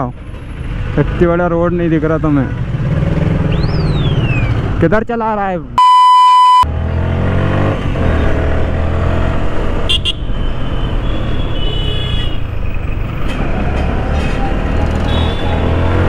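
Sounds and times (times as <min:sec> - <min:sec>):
road and wind noise: 0:00.0 - 0:16.0
censor bleep: 0:05.8 - 0:06.7
vehicle horn toot: 0:15.1 - 0:15.6.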